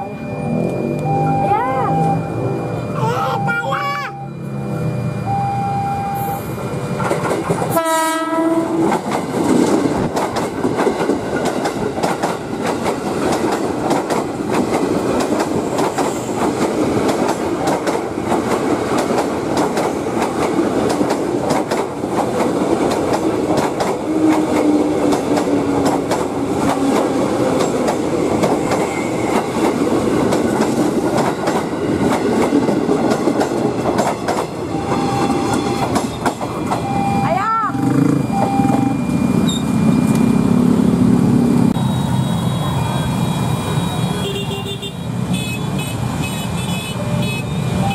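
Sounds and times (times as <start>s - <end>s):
train wheels rushing on rails: 6.0s - 47.9s
train horn blast: 7.7s - 8.9s.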